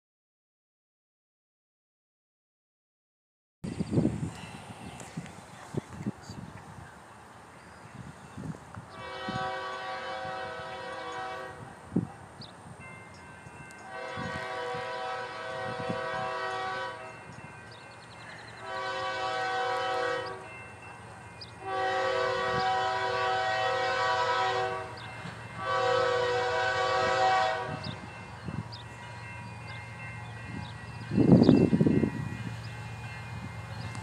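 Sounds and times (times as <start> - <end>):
locomotive air horn blasts: 8.9 - 11.7, 13.8 - 17.3, 18.6 - 20.5, 21.6 - 28.0.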